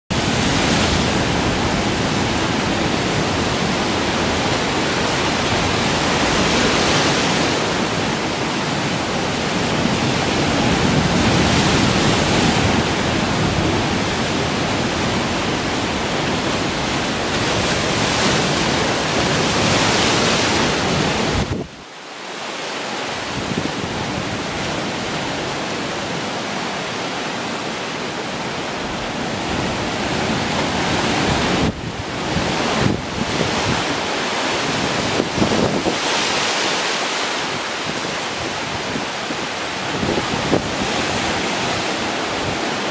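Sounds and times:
wind on microphone: 0.1 - 21.9, 23.2 - 26.2, 28.4 - 42.9
waves breaking on rocks: 0.2 - 21.6, 22.6 - 42.9.

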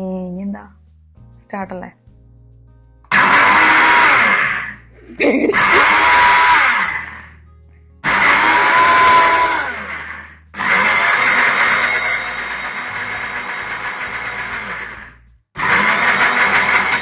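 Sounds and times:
mixer grinder motor running: 3.1 - 4.8, 5.5 - 7.3, 8.0 - 17.0.

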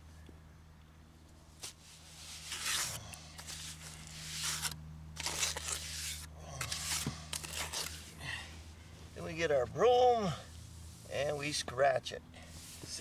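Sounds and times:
trowel scraping mortar: 1.6 - 8.2.

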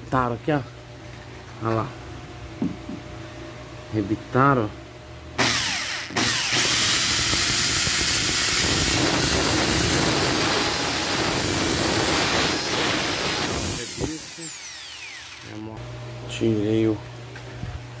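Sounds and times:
electric drill drilling metal: 5.4 - 15.7.

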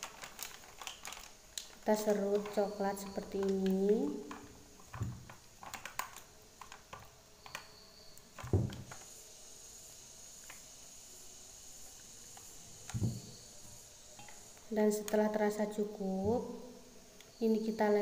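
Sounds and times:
soft handling thumps: 12.9 - 13.3.

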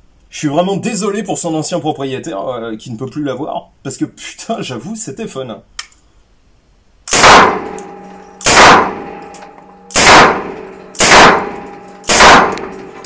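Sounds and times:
submachine gun single shots: 7.1 - 7.8, 8.4 - 9.2, 9.9 - 12.8
ringing echo indoors: 7.1 - 13.0.

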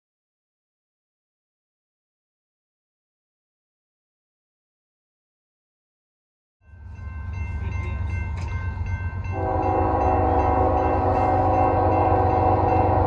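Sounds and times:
diesel locomotive rumbling: 6.7 - 13.0
locomotive air horn chord: 9.3 - 13.0.

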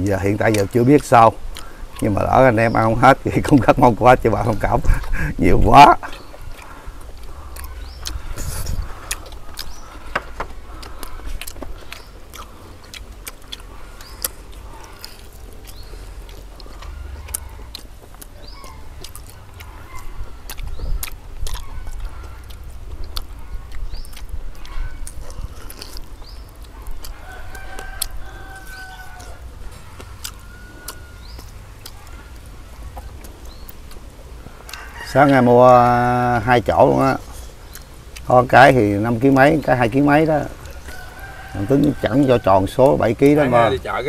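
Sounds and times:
eating clicks and knocks: 6.1 - 29.3
rooster crowing: 26.8 - 32.4, 34.6 - 35.6, 40.5 - 43.7.

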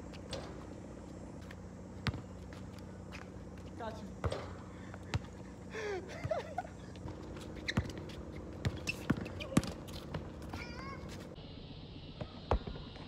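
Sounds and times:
basketball dribbling on asphalt: 1.4 - 5.4, 6.2 - 10.6
short high squeaks: 7.4 - 11.3.

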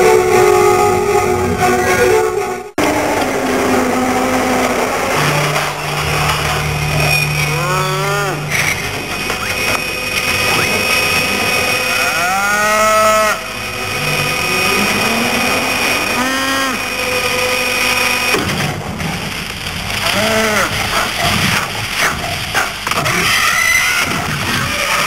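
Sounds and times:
dinosaur moaning honks: 7.4 - 8.8, 11.7 - 17.7, 20.0 - 20.8.

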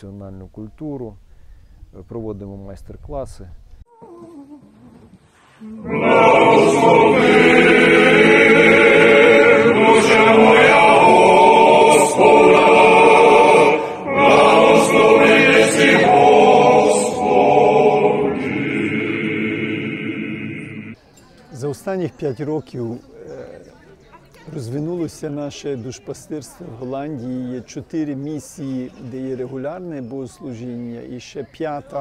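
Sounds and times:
men's choir singing unaccompanied: 5.6 - 21.0.

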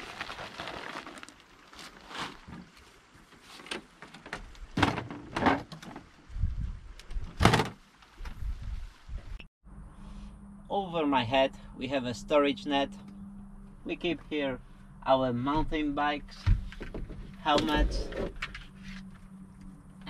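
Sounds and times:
fabric bag rustling: 0.0 - 3.7.

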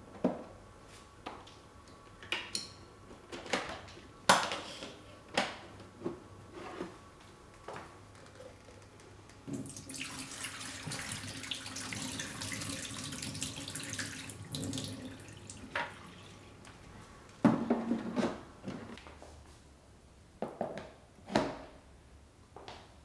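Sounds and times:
water pouring into a metal sink: 9.6 - 15.8.

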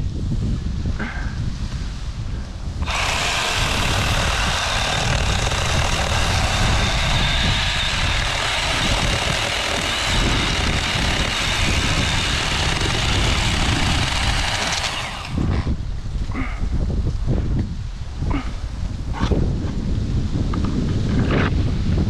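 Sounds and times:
cordless chainsaw whining: 2.8 - 15.8.

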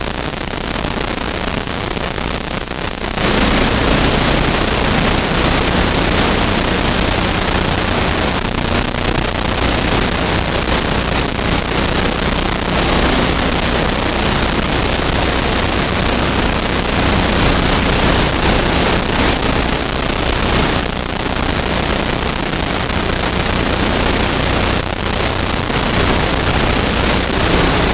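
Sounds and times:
loud steady hiss: 0.0 - 27.9.

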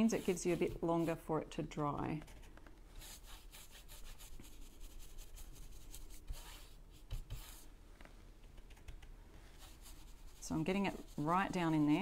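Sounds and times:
paintbrush scratching on wood: 0.0 - 1.3, 2.9 - 7.7, 9.5 - 12.0.

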